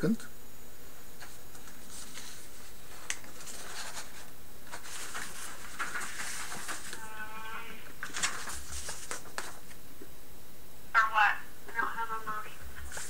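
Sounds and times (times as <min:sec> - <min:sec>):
background hiss: 0:00.0 - 0:13.0
papers rustling: 0:01.2 - 0:09.8, 0:12.7 - 0:13.0
faint voice: 0:07.0 - 0:07.9.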